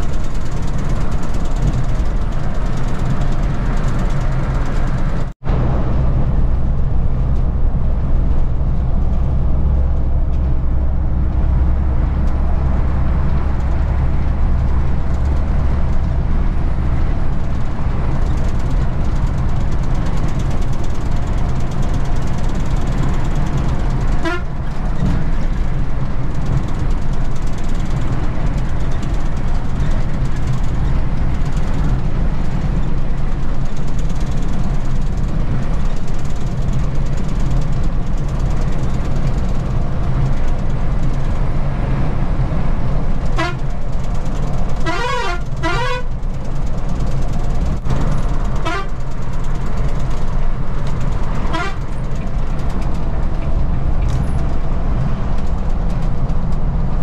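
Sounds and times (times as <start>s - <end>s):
coach engine and tyre drone: 0.0s - 57.0s
horn toots: 24.2s - 24.6s, 43.3s - 43.7s, 44.8s - 46.2s, 48.6s - 49.0s, 51.5s - 51.9s.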